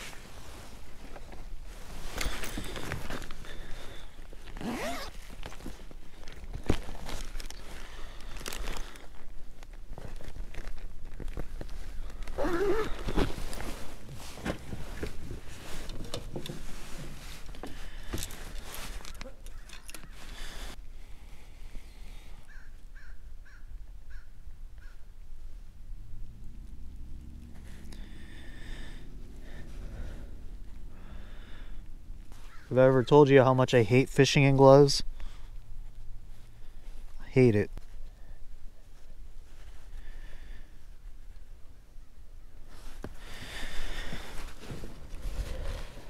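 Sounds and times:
clothing and gear rustling: 0:00.0 - 0:20.8, 0:27.4 - 0:33.0, 0:35.2 - 0:40.1, 0:42.4 - 0:46.0.

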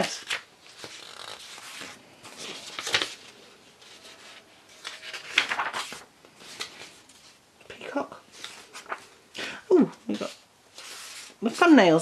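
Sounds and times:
book pages rustling: 0:00.2 - 0:09.2, 0:10.0 - 0:11.7
page swishing: 0:03.9 - 0:07.3, 0:10.7 - 0:11.4.

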